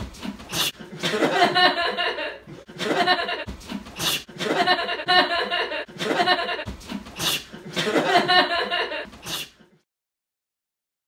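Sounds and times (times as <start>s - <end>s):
person laughing loudly: 7.6s - 9.1s.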